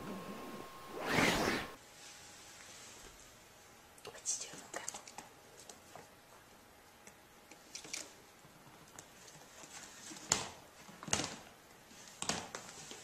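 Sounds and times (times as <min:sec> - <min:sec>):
toy dragged across wooden floor: 0:00.9 - 0:01.8.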